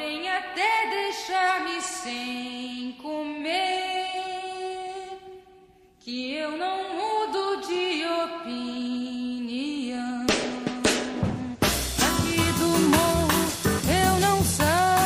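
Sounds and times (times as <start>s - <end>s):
woman singing: 0.0s - 15.0s.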